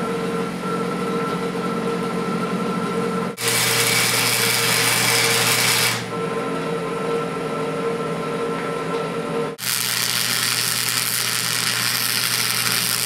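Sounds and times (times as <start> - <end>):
welder arc crackling: 3.4 - 6.1, 9.6 - 13.0
welder hum: 3.4 - 6.2, 9.6 - 13.0.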